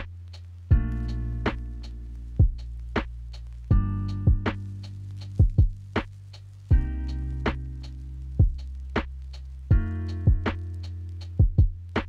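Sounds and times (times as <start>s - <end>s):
bass note and chord: 0.0s - 12.0s
kick drum thumps: 0.7s - 1.6s, 2.4s - 2.6s, 3.7s - 4.6s, 5.4s - 6.1s, 6.7s - 7.6s, 8.4s - 9.1s, 9.7s - 10.6s, 11.4s - 12.0s.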